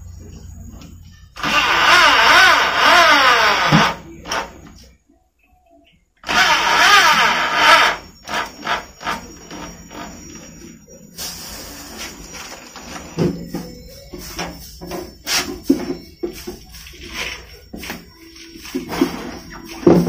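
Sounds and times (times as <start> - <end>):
electric drill driving screws: 1.4 - 4.5, 6.2 - 10.1.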